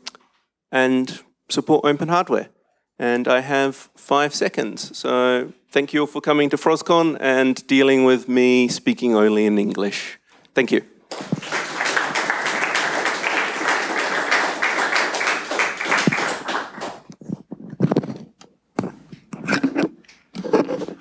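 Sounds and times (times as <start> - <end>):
audience applauding: 11.1 - 17.2
knocks and handling sounds: 17.0 - 21.0.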